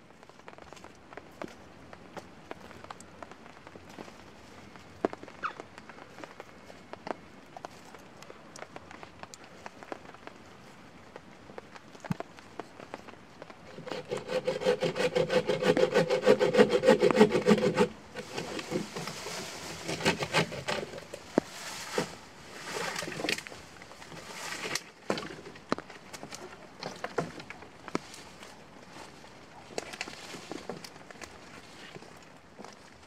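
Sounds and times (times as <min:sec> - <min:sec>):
bucksaw cutting a log: 0:13.7 - 0:23.5
scraping and rustling: 0:13.7 - 0:32.2.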